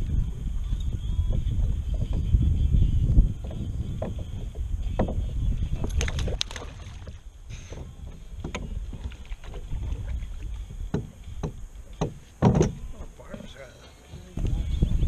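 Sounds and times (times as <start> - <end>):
wind rumble on microphone: 0.0 - 15.0
knocks on kayak hull: 3.4 - 5.4, 10.9 - 13.0.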